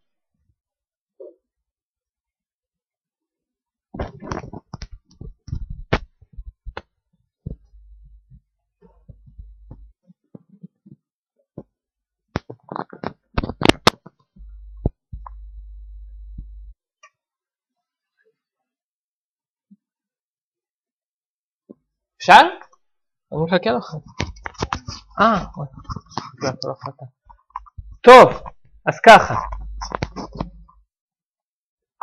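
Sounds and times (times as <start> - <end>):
low steady hum: 14.4 - 16.8.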